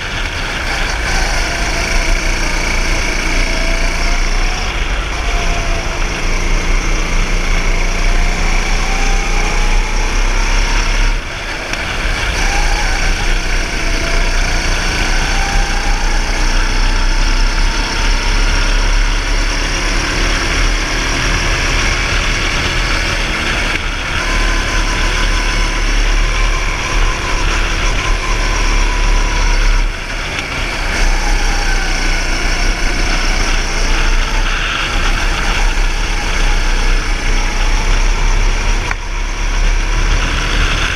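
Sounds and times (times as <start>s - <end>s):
go-kart engine revving: 0.0s - 40.9s.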